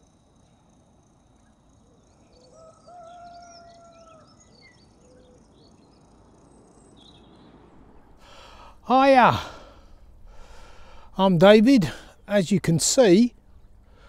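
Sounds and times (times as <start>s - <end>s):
small birds chirping: 1.3s - 14.0s
distant rooster crowing: 2.3s - 4.6s.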